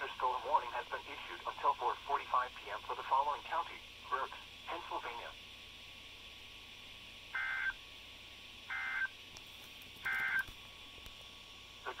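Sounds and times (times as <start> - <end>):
warbling data tone bursts: 7.4 - 7.8, 8.7 - 9.2, 10.0 - 10.5.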